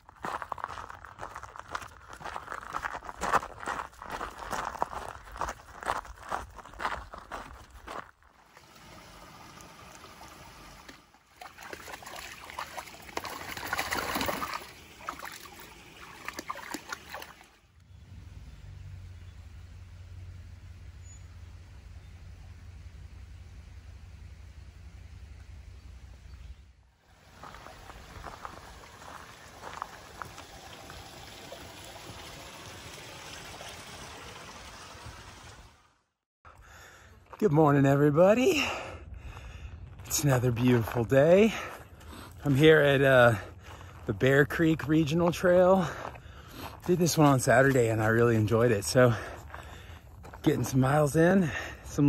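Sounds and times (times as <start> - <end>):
footsteps on wooden planks: 0.0 - 8.7, 49.1 - 50.9
creek water trickling over rocks: 7.7 - 17.8, 27.0 - 35.7
dog wading splashes: 9.5 - 17.6.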